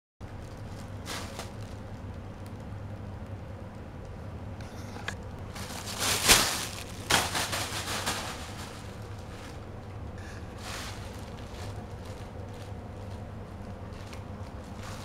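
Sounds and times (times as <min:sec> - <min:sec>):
plastic bag crinkling and rustling: 0:00.3 - 0:02.7, 0:05.4 - 0:09.8, 0:10.5 - 0:15.0.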